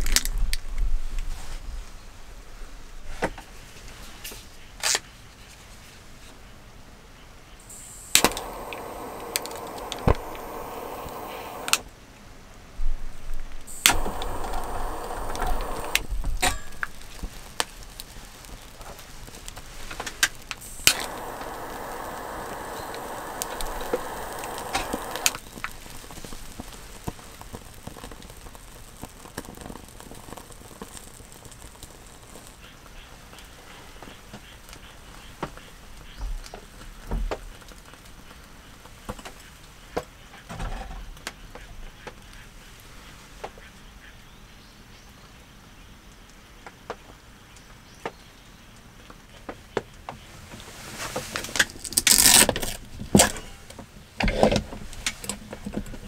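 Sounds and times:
steady gas hiss: 0:07.6 - 0:12.0, 0:13.1 - 0:36.2
gas lighter clicking: 0:07.7 - 0:11.8, 0:13.7 - 0:17.0, 0:20.6 - 0:25.4.

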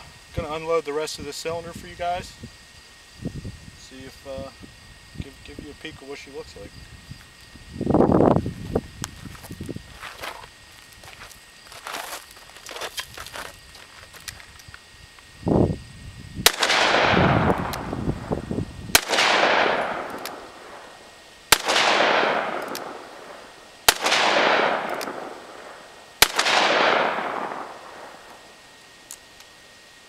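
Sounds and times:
revolver shots with echo: 0:21.6 - 0:28.2.

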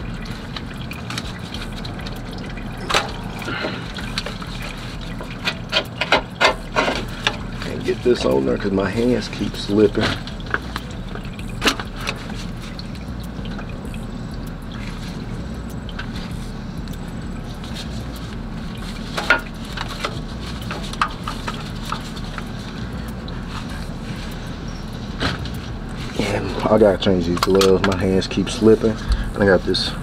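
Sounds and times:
oil trickling into drain pan: 0:00.0 - 0:29.6
knocks and clicks of oil filter: 0:02.9 - 0:07.4, 0:19.2 - 0:22.5.

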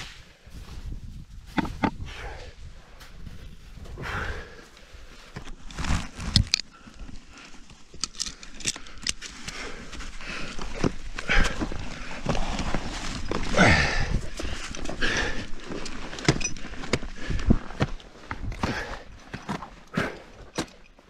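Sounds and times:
knocks and scrapes against rock: 0:01.5 - 0:02.0, 0:05.3 - 0:21.0.

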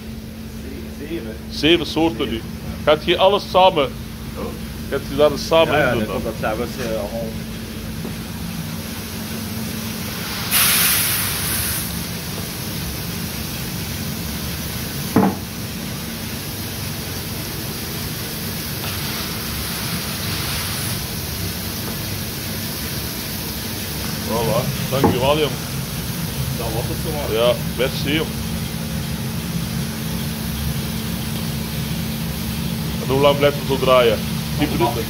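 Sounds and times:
coffee roaster whirring: 0:00.0 - 0:35.0
sharp knock: 0:15.2 - 0:15.5
coffee beans pouring into hopper: 0:18.4 - 0:25.6.

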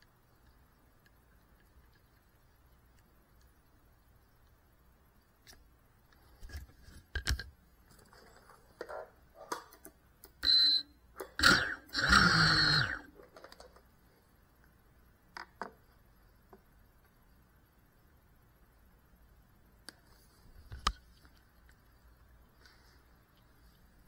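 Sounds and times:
drone motors spinning up: 0:11.3 - 0:13.1.

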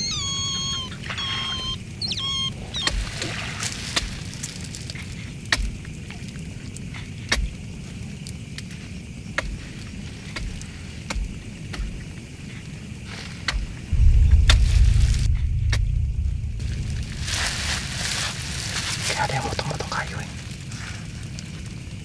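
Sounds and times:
low thumps: 0:13.9 - 0:19.1
steady low rumble: 0:13.9 - 0:20.8.

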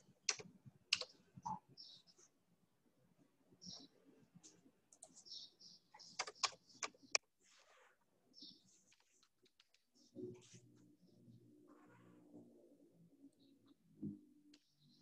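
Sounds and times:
typing on computer keyboard: 0:00.3 - 0:01.1, 0:06.1 - 0:07.0.

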